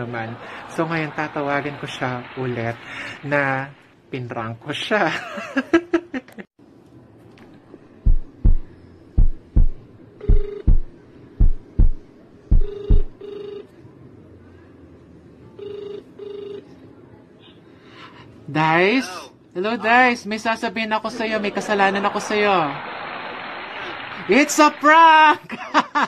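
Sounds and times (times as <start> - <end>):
heartbeat thumps: 8.0 - 13.2
telephone ringback tone: 12.6 - 13.7, 15.6 - 16.6.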